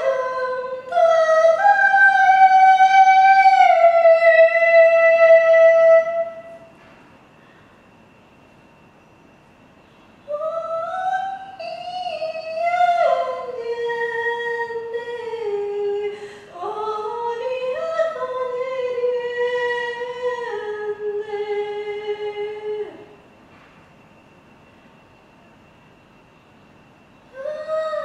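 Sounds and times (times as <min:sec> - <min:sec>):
woman singing wordless held notes: 0:10.3 - 0:23.1.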